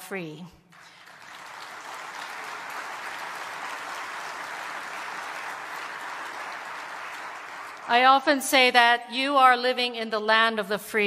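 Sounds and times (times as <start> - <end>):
audience applauding: 0.7 - 8.2.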